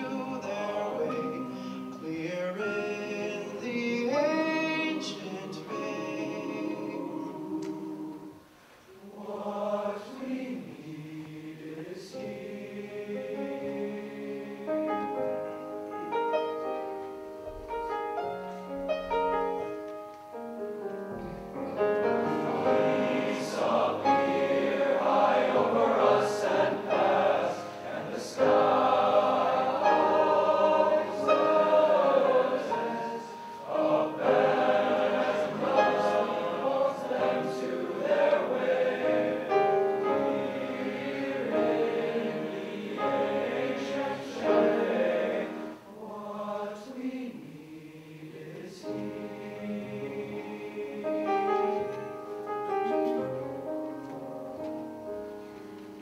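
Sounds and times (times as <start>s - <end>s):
male choir singing: 0.0s - 8.4s, 9.0s - 15.2s, 22.0s - 52.1s.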